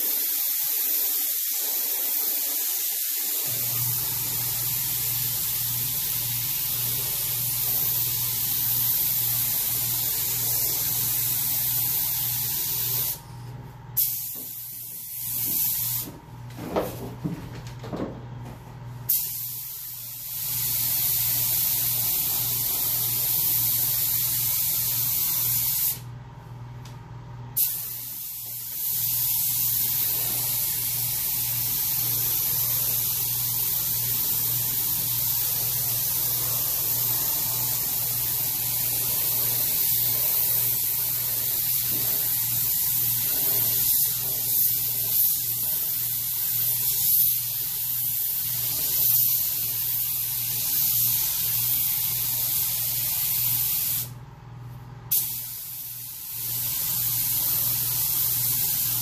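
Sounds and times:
paint spray gun hissing: 0:00.0 - 0:13.3, 0:14.0 - 0:16.1, 0:19.1 - 0:26.0, 0:27.6 - 0:54.2, 0:55.1 - 0:59.0.

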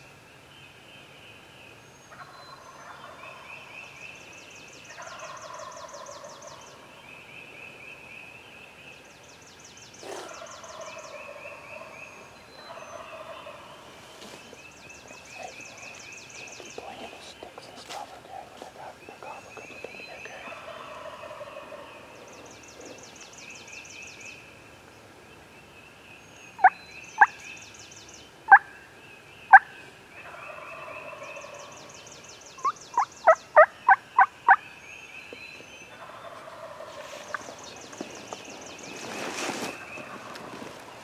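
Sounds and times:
songbirds singing: 0:00.0 - 0:41.0
distant turkey gobbling: 0:04.9 - 0:06.6, 0:10.0 - 0:13.9, 0:20.4 - 0:23.0, 0:36.0 - 0:37.6.

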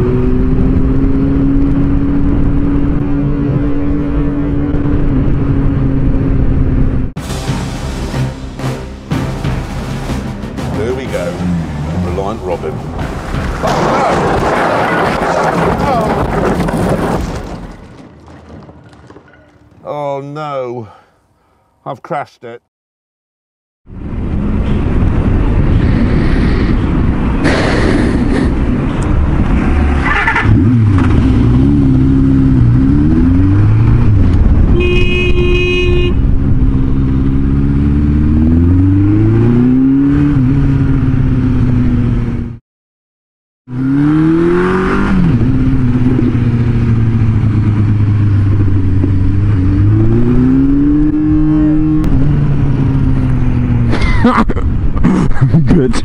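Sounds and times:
motorcycle engine accelerating: 0:00.0 - 0:07.1, 0:23.9 - 0:42.6, 0:43.7 - 0:55.0
wind noise: 0:24.1 - 0:31.5, 0:32.6 - 0:37.5
horn tone: 0:34.7 - 0:36.3.

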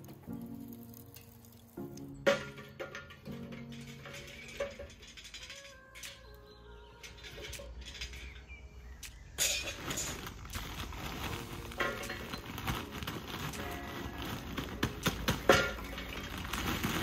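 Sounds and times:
hard objects clattering and clinking: 0:02.1 - 0:06.2, 0:07.0 - 0:08.6, 0:09.4 - 0:17.0.

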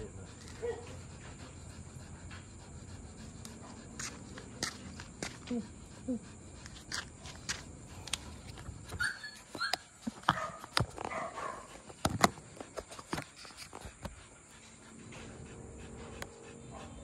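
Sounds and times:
dog whimpering: 0:08.9 - 0:10.1.

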